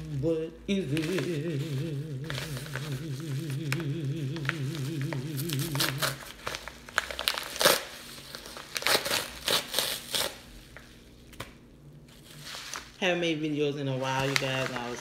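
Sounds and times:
padded mailer crinkling and tearing: 0.9s - 10.6s, 13.9s - 15.0s.

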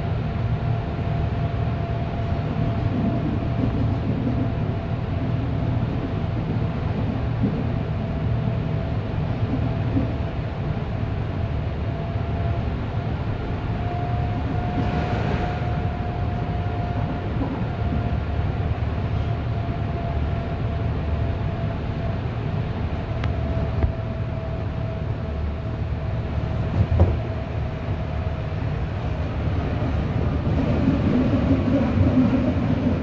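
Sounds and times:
train wheels rumbling on rail: 0.0s - 33.0s.

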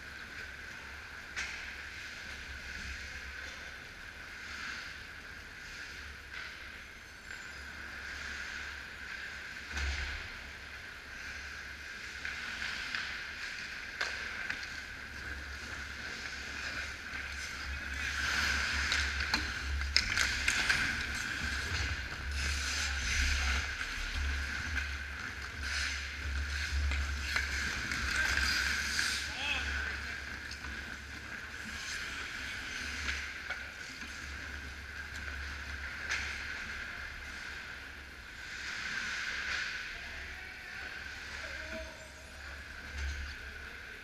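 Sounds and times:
skates scraping ice: 0.0s - 44.0s
hockey sticks and puck clacking: 1.3s - 2.4s, 12.0s - 37.6s.

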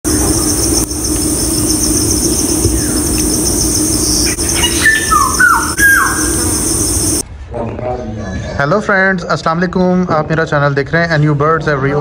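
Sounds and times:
insect chorus pulsing drone: 0.0s - 7.2s
bird calling gliding notes: 0.1s - 7.2s.

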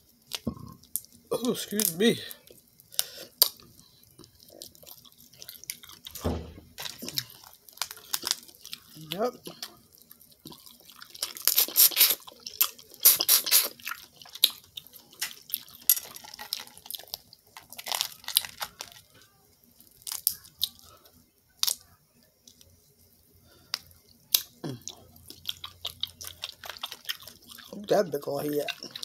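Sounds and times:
seafood shells cracking and tearing: 6.8s - 19.2s, 19.8s - 20.8s, 21.6s - 21.8s, 23.7s - 27.7s
mouth smacking: 13.0s - 13.8s.

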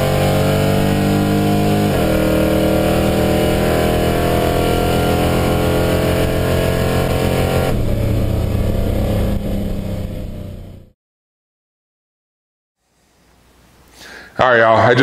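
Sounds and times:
pickup engine accelerating: 0.0s - 10.9s.

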